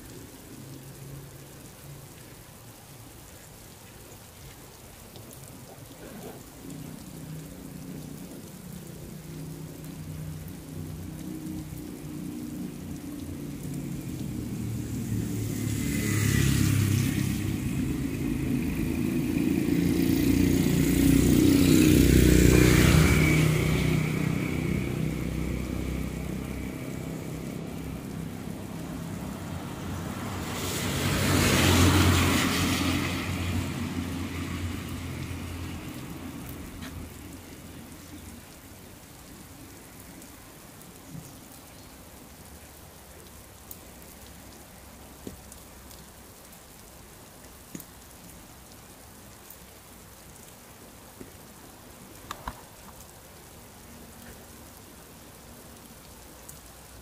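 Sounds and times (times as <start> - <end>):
light rain: 0.0 - 57.0
tyres hissing on wet road: 0.0 - 57.0
vehicle engines passing: 6.0 - 40.0.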